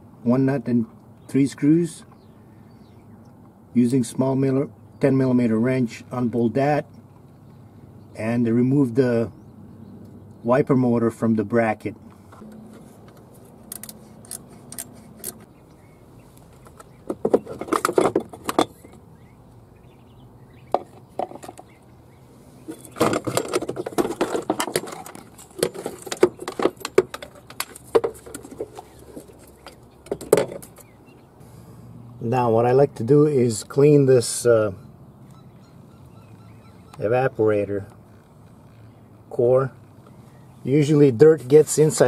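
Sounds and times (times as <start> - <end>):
metal tools clinking and rattling: 22.7 - 30.9.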